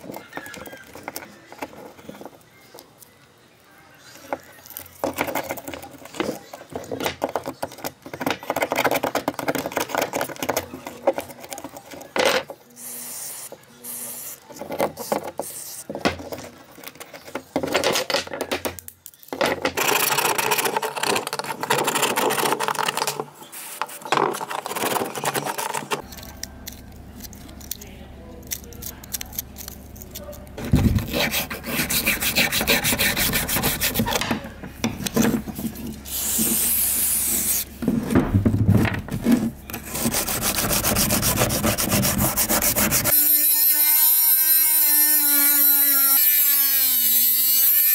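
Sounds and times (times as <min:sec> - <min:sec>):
wire brush scrubbing metal: 0:28.5 - 0:34.3, 0:39.7 - 0:47.9.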